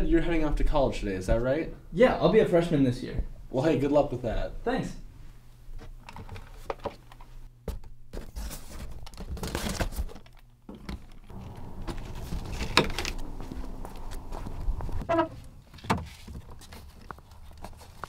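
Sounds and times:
background noise: 0:00.0 - 0:18.0
objects packed into box: 0:08.2 - 0:18.0
footsteps on sidewalk: 0:11.3 - 0:15.0.

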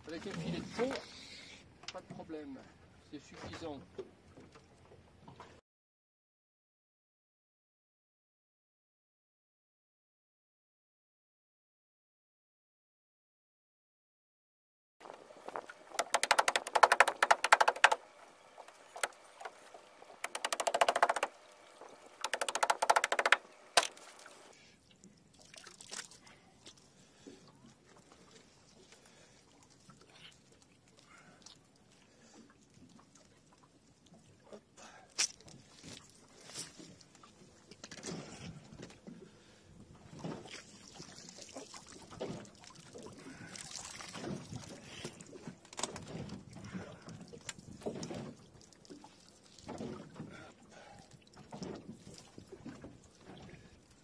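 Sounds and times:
mallet cracking crabs: 0:16.0 - 0:18.0, 0:20.2 - 0:21.4, 0:22.2 - 0:24.1
water dripping and splashing: 0:18.6 - 0:26.9, 0:40.4 - 0:54.0.

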